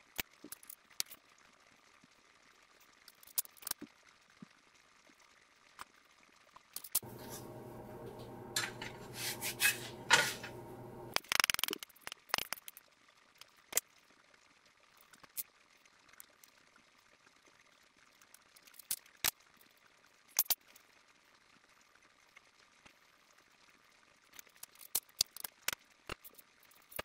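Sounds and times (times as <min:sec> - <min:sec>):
spatula scraping frying pan: 0:07.0 - 0:11.2
steady low hum: 0:07.0 - 0:11.2.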